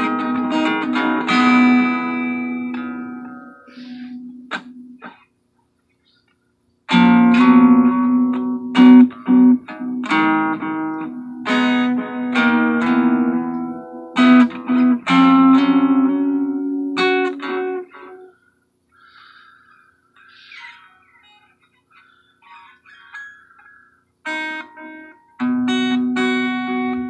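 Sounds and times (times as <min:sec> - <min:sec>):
acoustic guitar chords: 0:00.0 - 0:05.2, 0:06.9 - 0:18.3, 0:24.3 - 0:27.0.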